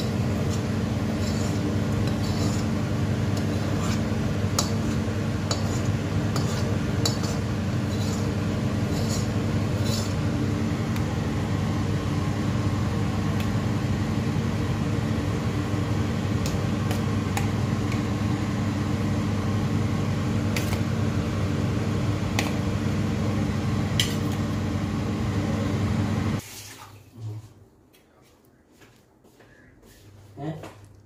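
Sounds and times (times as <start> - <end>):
electric fan humming: 0.0 - 31.0.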